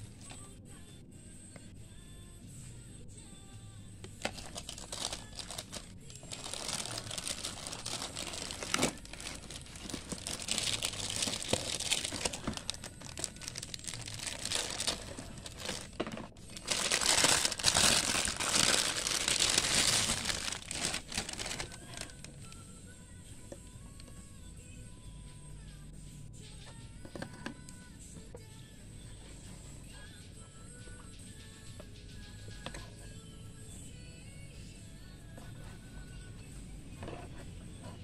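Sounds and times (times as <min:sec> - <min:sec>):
plastic bag crinkling: 0:04.2 - 0:22.6.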